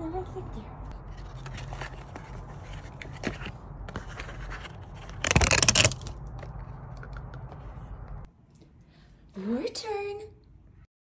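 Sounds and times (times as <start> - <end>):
cardboard and paper packaging rustling: 1.0 - 7.2.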